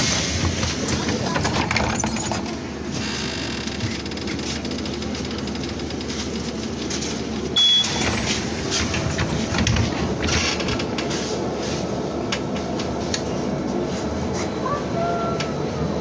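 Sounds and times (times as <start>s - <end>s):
trolleybus humming: 0.0s - 16.0s
short high beep: 7.6s - 8.0s.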